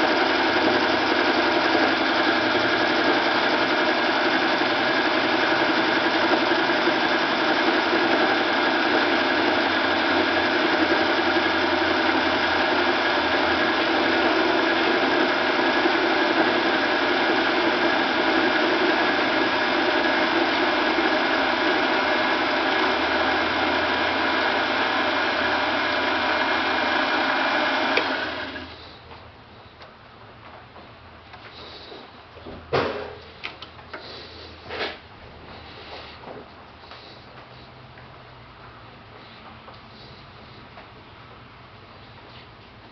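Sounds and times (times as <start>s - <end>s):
lathe cutting metal: 0.0s - 28.7s
lathe running: 0.0s - 28.8s.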